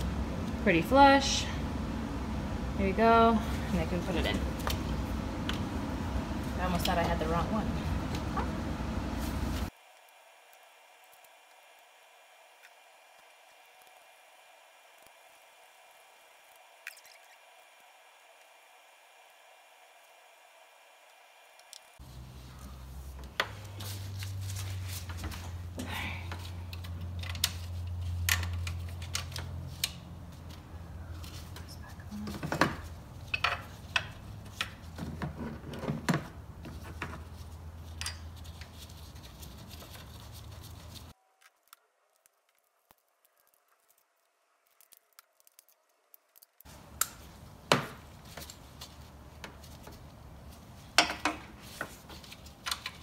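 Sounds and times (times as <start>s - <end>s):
steady low hum: 0.0s - 41.2s.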